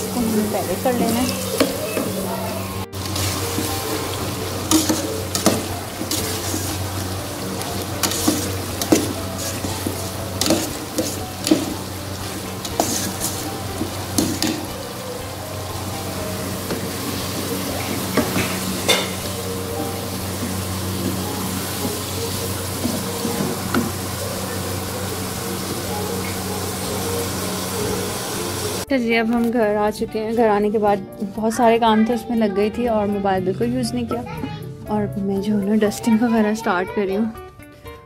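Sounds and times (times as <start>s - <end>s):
food sizzling: 0.0s - 28.9s
metal spoon scraping pot: 4.6s - 7.0s, 8.0s - 14.7s.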